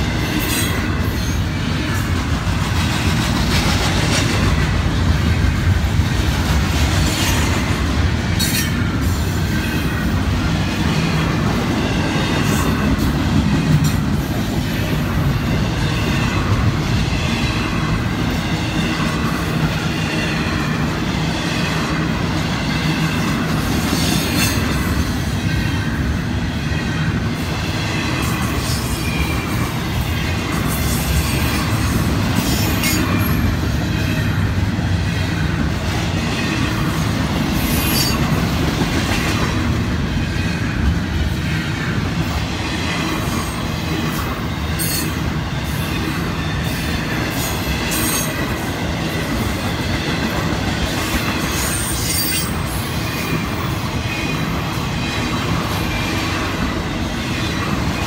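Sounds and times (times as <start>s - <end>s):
freight train rumbling on rails: 0.0s - 58.0s.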